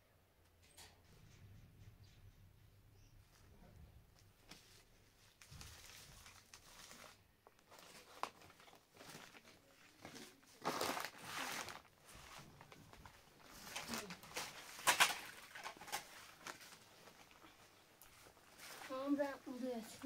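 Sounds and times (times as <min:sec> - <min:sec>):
flatbread rustling and tearing: 0:04.5 - 0:19.0.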